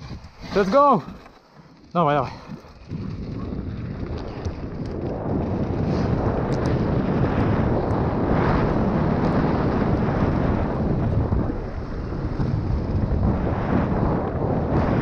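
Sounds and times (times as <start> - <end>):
bike tyres rattling on gravel trail: 0.0 - 15.0
wind buffeting microphone: 0.0 - 15.0.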